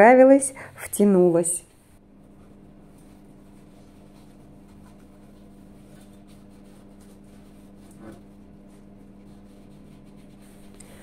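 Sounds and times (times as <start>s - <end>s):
sponge rubbing on tap: 2.2s - 11.0s.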